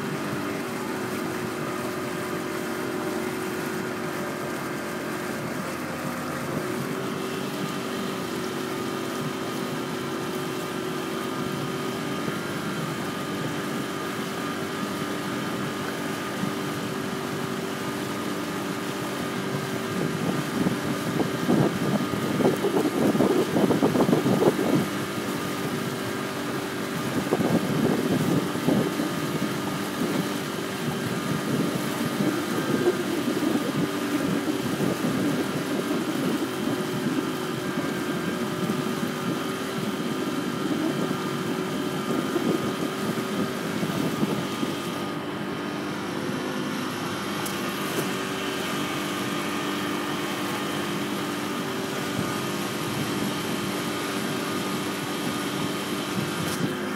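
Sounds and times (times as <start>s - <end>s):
boat engine humming: 0.0s - 56.9s.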